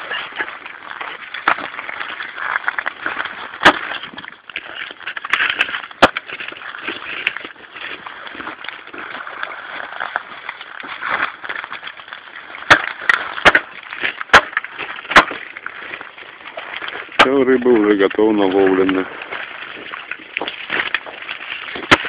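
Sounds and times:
sharp chopping strikes: 12.7 - 13.7, 14.3 - 15.4.

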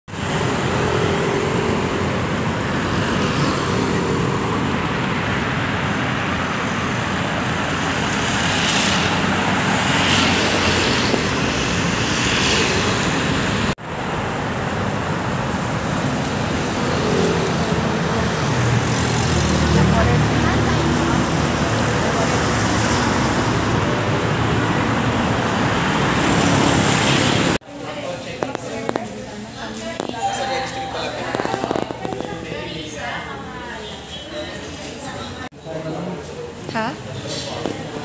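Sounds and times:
cars passing on road: 0.1 - 27.6.

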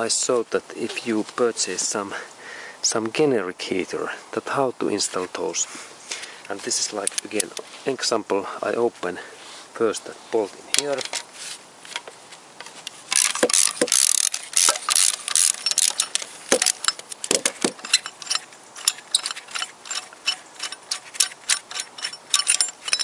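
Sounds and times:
ratchet wrench clicking: 13.1 - 23.0
metal knocks: 14.6 - 23.0.

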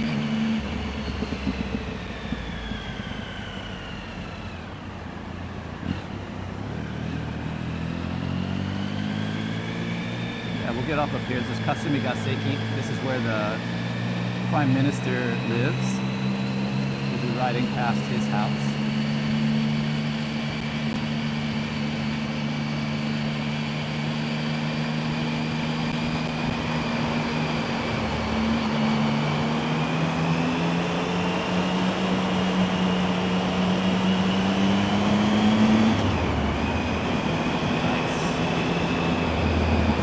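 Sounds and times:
motorcycle engine running: 0.0 - 40.0
road noise: 0.0 - 40.0.

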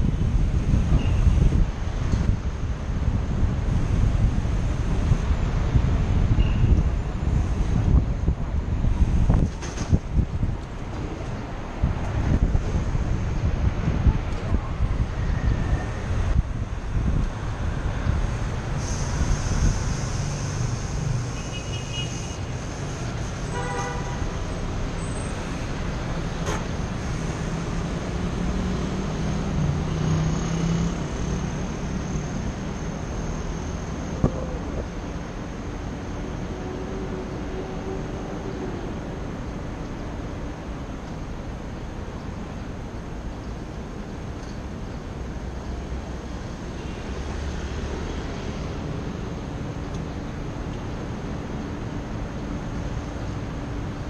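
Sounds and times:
city road traffic: 0.0 - 54.0
car horn toot: 23.5 - 24.2.

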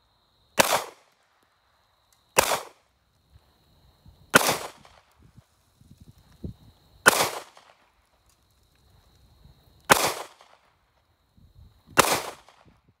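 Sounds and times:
pistol shots with echo: 0.6 - 1.0, 2.4 - 2.8, 4.4 - 5.0, 7.1 - 7.7, 9.9 - 10.6, 12.0 - 12.7.

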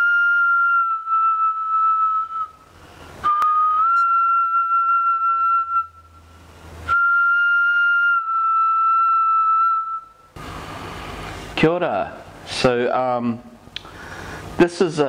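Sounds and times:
flute long held notes: 0.0 - 10.4.

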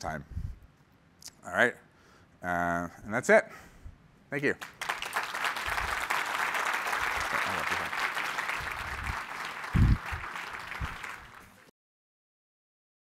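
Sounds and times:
audience applauding: 4.6 - 11.7.

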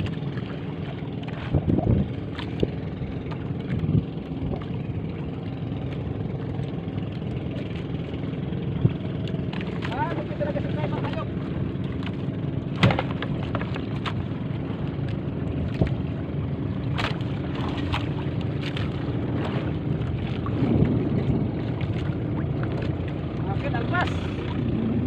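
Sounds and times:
boat engine running: 0.0 - 25.0.

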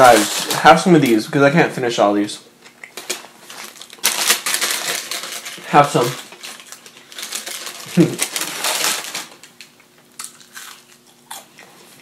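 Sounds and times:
paper bag crinkling: 0.0 - 1.2, 3.0 - 9.6
onion ring crunching: 3.7 - 11.8.

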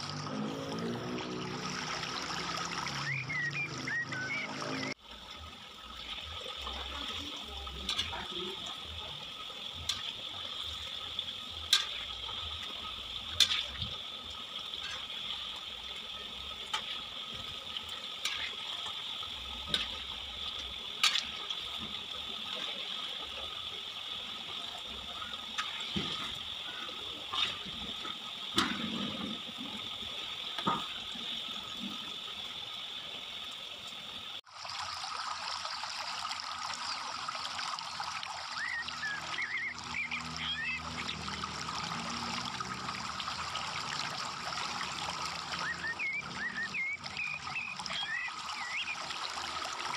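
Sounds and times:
hot oil sizzling: 0.0 - 49.9
metal spatula tapping wok: 11.6 - 12.5, 13.2 - 13.8, 14.8 - 15.2, 18.2 - 18.6, 21.0 - 21.4.

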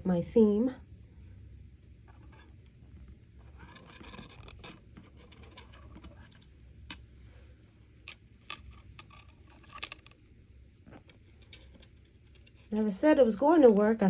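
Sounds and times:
wire scratching rustle: 2.0 - 12.8.

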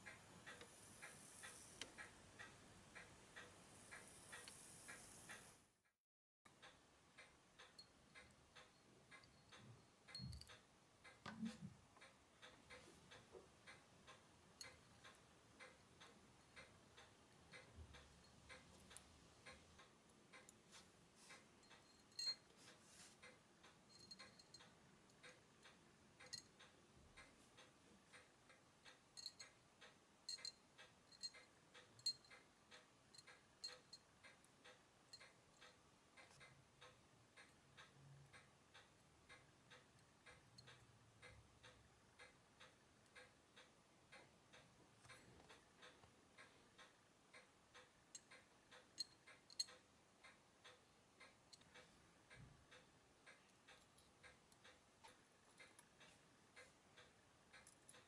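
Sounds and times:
faint regular ticking: 0.0 - 5.9, 6.5 - 58.0
tweezers clicking on metal: 21.6 - 22.5, 23.6 - 26.7, 28.9 - 36.5, 47.8 - 51.8.

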